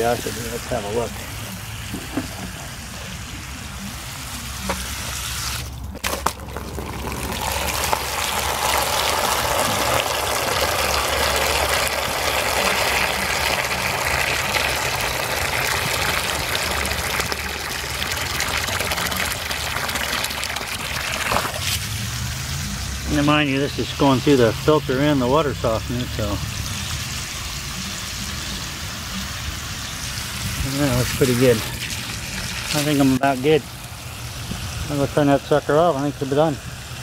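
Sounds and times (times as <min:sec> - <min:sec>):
hose water spraying onto grass: 0:00.0 - 0:37.0
water jet pouring into tub: 0:05.4 - 0:22.1, 0:30.0 - 0:34.1.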